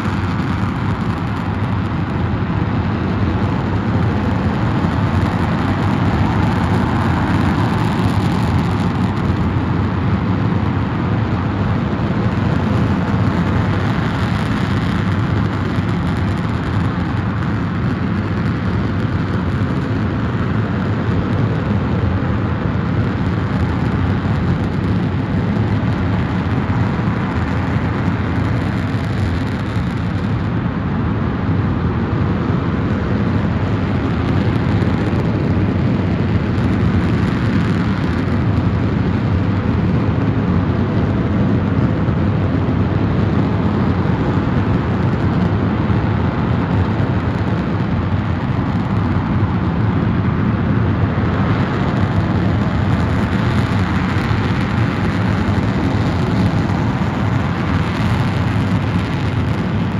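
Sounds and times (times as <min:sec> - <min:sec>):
rocket engine firing: 0:00.0 - 0:30.7, 0:42.8 - 0:59.9.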